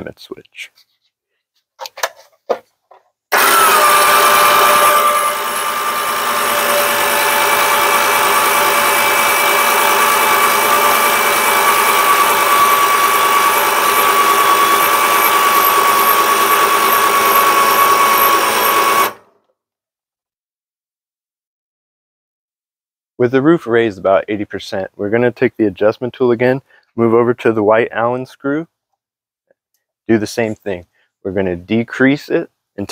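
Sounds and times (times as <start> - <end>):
electric winch motor whine: 3.3 - 19.3.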